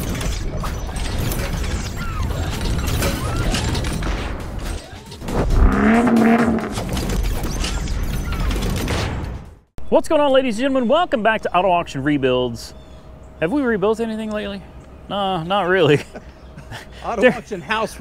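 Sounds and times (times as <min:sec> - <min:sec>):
steady low rumble: 0:05.2 - 0:07.0
pitched swell: 0:05.3 - 0:06.9.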